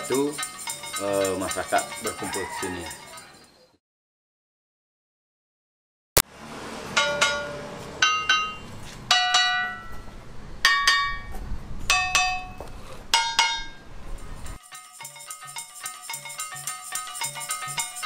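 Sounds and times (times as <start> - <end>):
stone slabs struck ringing: 7.0 - 10.0.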